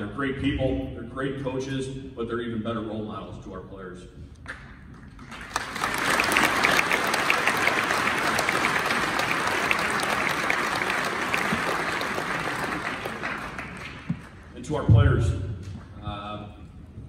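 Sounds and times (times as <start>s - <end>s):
audience applauding: 5.2s - 14.6s.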